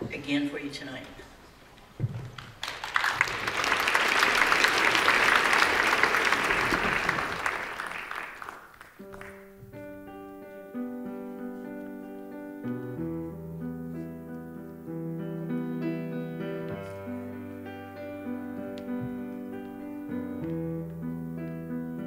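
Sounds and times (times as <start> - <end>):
audience applause: 2.4 - 9.4.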